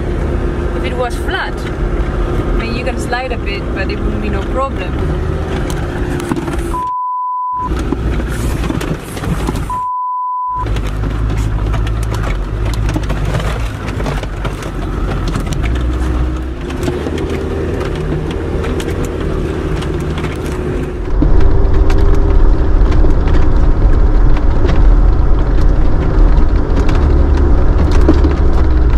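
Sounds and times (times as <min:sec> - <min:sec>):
knocks and rattles on rough track: 0:00.0 - 0:06.9, 0:07.6 - 0:09.8, 0:10.6 - 0:28.9
vehicle engine driving slowly: 0:00.0 - 0:28.9
steady beep tone: 0:06.7 - 0:07.7, 0:09.7 - 0:10.6.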